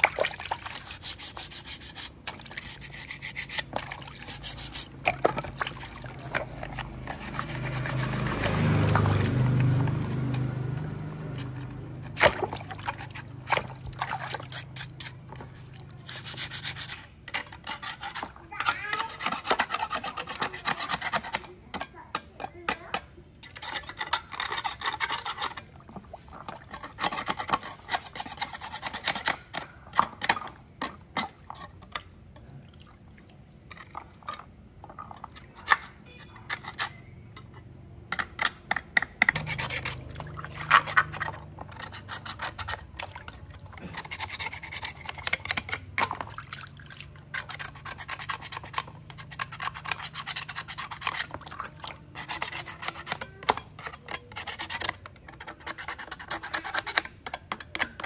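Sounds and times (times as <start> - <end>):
scouring pad scrubbing: 0.0 - 21.4, 39.4 - 57.0
putty knife scraping metal: 0.0 - 32.1, 33.8 - 46.3, 47.2 - 58.0.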